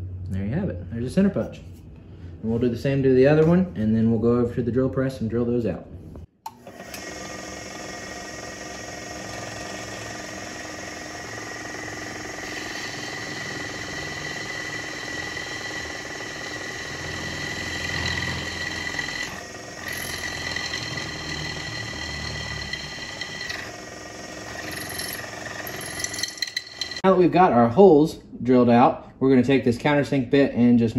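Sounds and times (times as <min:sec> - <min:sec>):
drill press motor whine: 0:06.5 - 0:27.0
drill bit cutting steel: 0:06.7 - 0:27.0.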